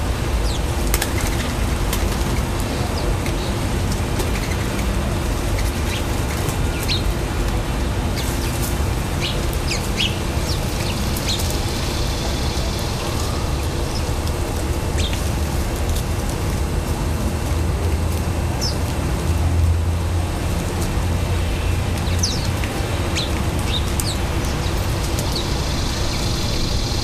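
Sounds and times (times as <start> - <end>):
steady low rumble: 0.0 - 27.0
small birds chirping: 0.4 - 7.1, 8.1 - 15.3, 21.6 - 27.0
dove's wings flapping: 0.8 - 7.0.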